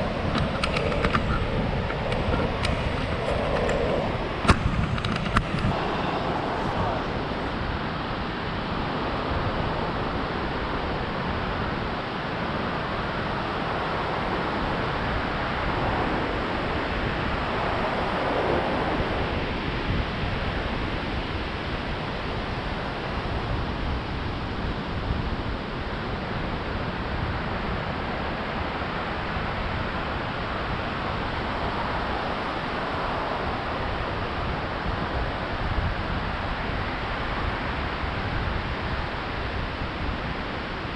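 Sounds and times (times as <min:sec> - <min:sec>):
surf waves breaking: 0:00.0 - 0:25.3
wind buffeting microphone: 0:00.0 - 0:40.9.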